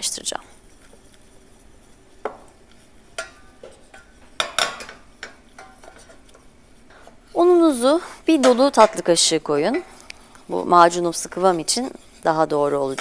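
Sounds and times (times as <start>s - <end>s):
wooden spoon stirring roux: 0.0s - 13.0s
spoon knocking against pan: 2.2s - 2.5s, 3.2s - 6.0s.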